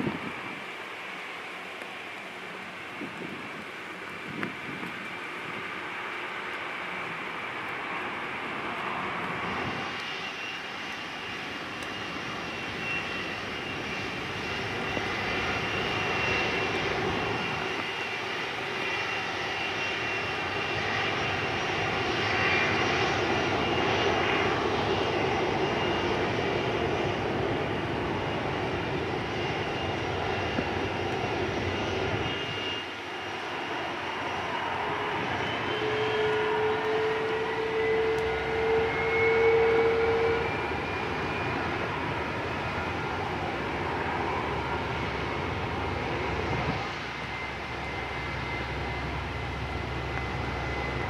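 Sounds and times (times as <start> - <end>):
jet engines whining and roaring: 0.0 - 51.0.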